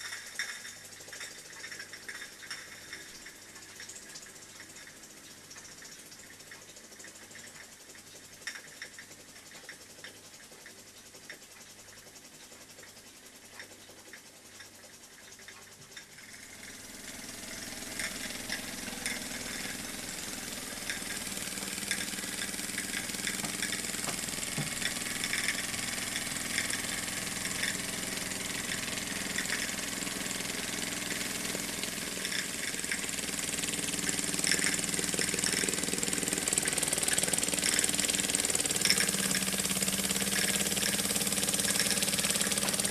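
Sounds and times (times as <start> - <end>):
toy steam engine clicking: 13.6 - 42.9.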